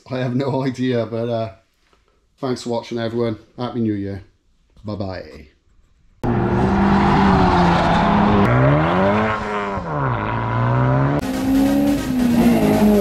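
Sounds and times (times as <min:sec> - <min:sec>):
car engine accelerating: 0:06.2 - 0:13.0.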